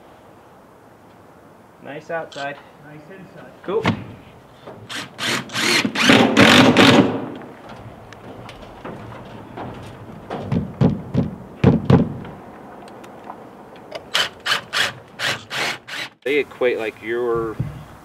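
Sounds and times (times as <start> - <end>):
knocks on window frame: 10.3 - 12.4.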